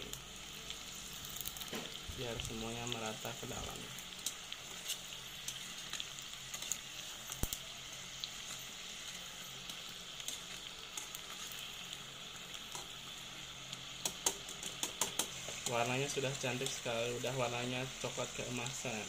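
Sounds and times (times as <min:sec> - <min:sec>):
food deep-frying in hot oil: 0:00.0 - 0:19.0
metal tongs clicking against pot: 0:14.0 - 0:15.3.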